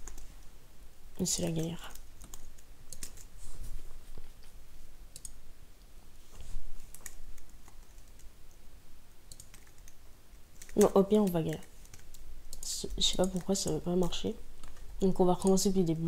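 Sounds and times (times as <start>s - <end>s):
keyboard and mouse clicks: 1.5s - 3.3s, 4.3s - 5.4s, 6.9s - 8.6s, 9.3s - 10.0s, 10.6s - 14.8s.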